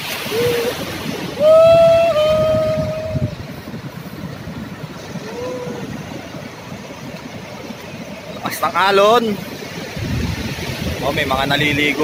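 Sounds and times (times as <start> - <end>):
heavy surf: 0.0 - 12.0
wind: 0.0 - 12.0
person shouting: 1.4 - 3.3.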